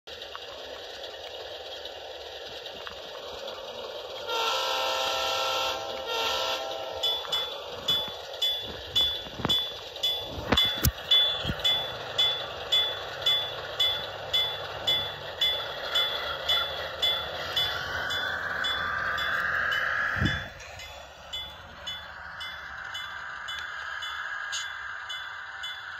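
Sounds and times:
train noise: 0:00.1 - 0:25.9
railroad crossing bell ringing: 0:04.2 - 0:25.9
rising high tone: 0:06.6 - 0:25.9.

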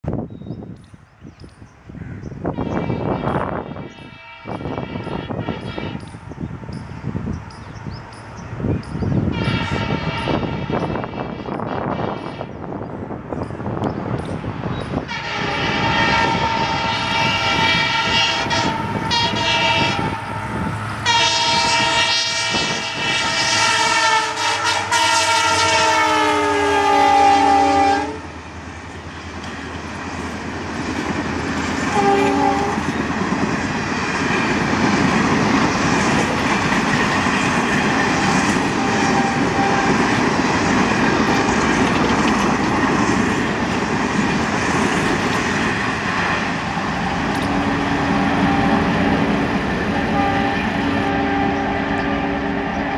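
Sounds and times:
train coaches rumbling and clacking: 0:00.0 - 0:52.9
diesel locomotive horn: 0:02.4 - 0:06.6, 0:09.2 - 0:12.9, 0:13.9 - 0:28.5, 0:31.6 - 0:33.3, 0:33.9 - 0:43.6, 0:45.5 - 0:52.9.

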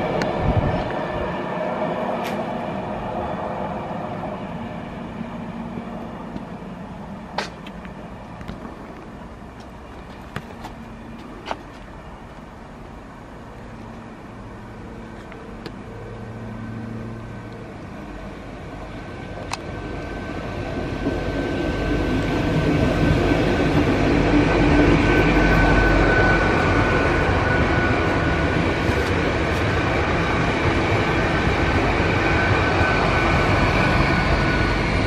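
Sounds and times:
train engines humming: 0:00.0 - 0:35.0
train rumbling: 0:00.0 - 0:35.0.

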